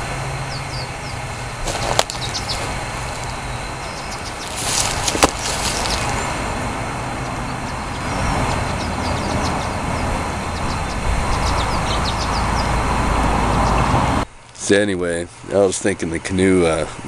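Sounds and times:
wind rumbling on microphone: 0.0 - 14.3
footsteps on wood chips: 1.6 - 6.6.

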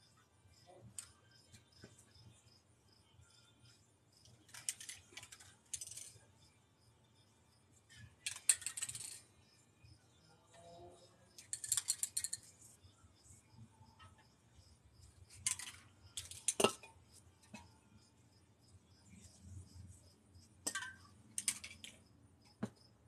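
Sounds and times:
spray paint cans clinking: 15.3 - 16.9, 20.6 - 22.0.

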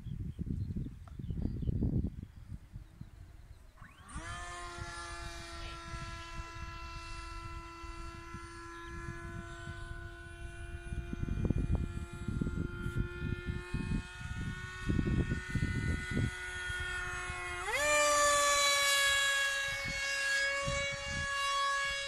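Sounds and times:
wind rumble on microphone: 0.0 - 22.0
model plane motor whining: 3.0 - 22.0.

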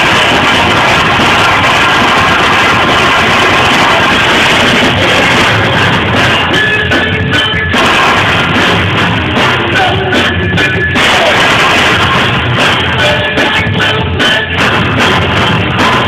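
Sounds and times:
drum kit: 0.0 - 16.0
electric guitars: 0.0 - 16.0.

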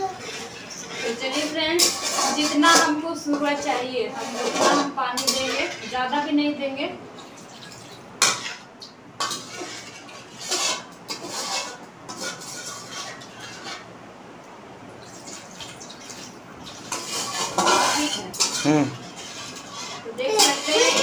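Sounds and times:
metal spatula scraping a pan: 0.0 - 6.3, 8.2 - 13.9, 16.7 - 21.0
water pouring: 15.0 - 16.9.

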